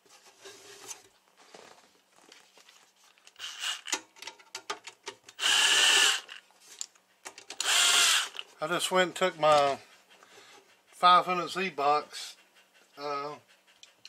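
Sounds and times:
cordless driver spinning screws: 3.4s - 4.0s, 5.4s - 6.4s, 7.5s - 8.4s.

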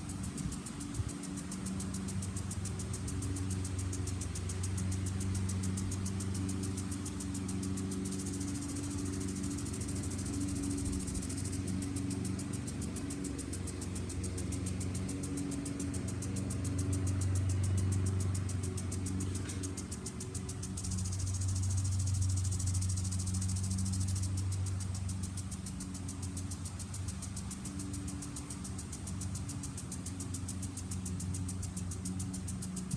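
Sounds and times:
fast high-pitched ticking: 0.0s - 32.9s
lawn mower engine running: 0.0s - 32.9s.

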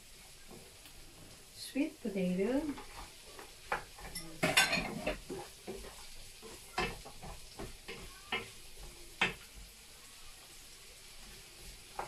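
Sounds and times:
faint sizzle: 0.0s - 12.0s
wooden spoon knocking a pan: 2.6s - 9.6s.

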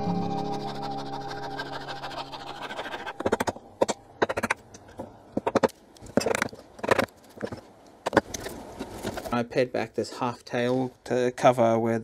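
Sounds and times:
background music: 0.0s - 3.6s
hand saw cutting wood: 0.4s - 4.6s.

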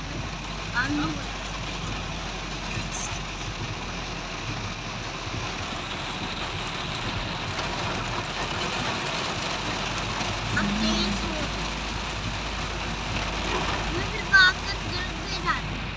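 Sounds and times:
heavy rain on car roof: 0.0s - 15.9s
idling engine hum: 0.0s - 15.9s.

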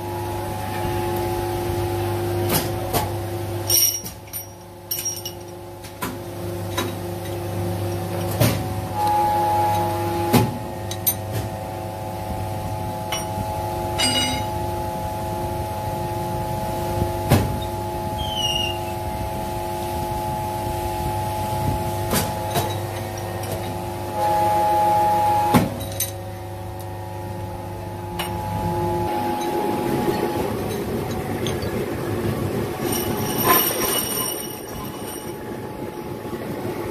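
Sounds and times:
machine humming: 17.8s - 36.9s.

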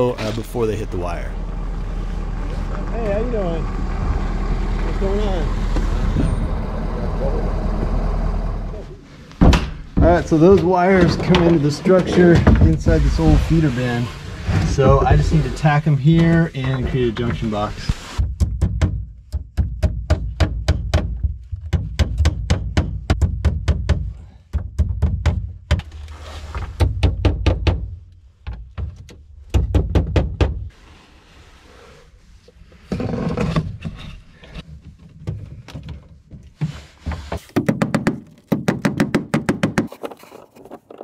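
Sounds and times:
wooden bin booming: 9.4s - 13.7s.

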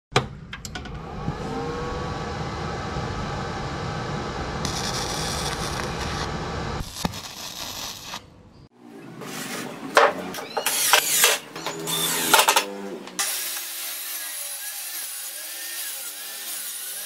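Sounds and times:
dense rumbling swell: 1.1s - 6.8s.

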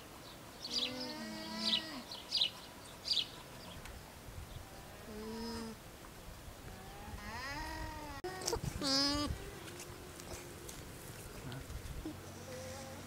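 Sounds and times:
alpaca humming: 0.7s - 2.1s, 4.6s - 5.8s, 6.7s - 10.8s, 12.0s - 13.0s.

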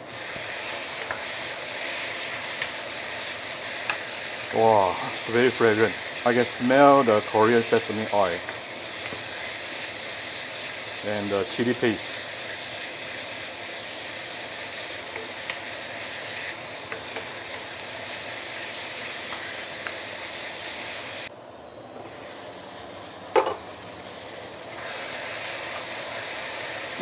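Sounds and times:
food sizzling in a wok: 0.0s - 27.0s.

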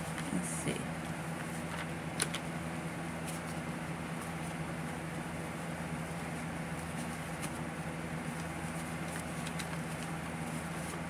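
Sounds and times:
banknotes rustling: 3.2s - 11.0s.

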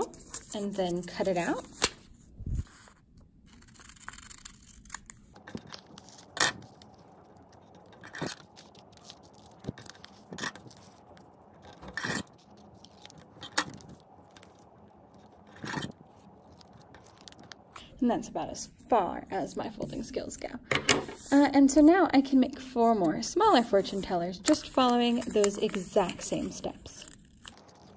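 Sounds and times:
paper rustling: 0.0s - 17.9s, 21.0s - 21.9s, 22.9s - 27.9s
scissors snipping paper: 3.5s - 11.1s, 23.5s - 27.9s.

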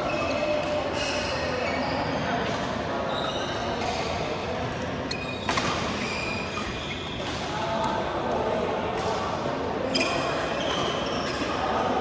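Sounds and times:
shoes squeaking on court floor: 0.0s - 8.0s, 9.8s - 11.8s
rackets hitting shuttlecock: 3.8s - 9.4s.

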